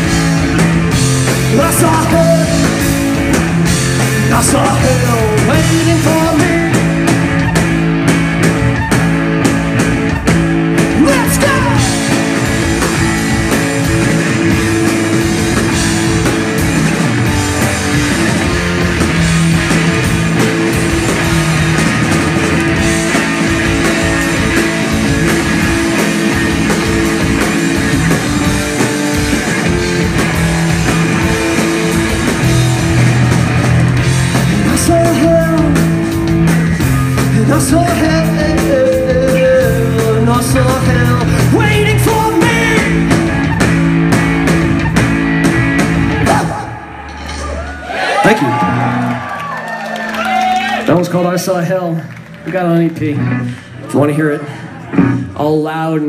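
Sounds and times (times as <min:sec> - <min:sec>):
electric guitar: 0:00.0 - 0:55.4
electric bass: 0:00.0 - 0:56.0.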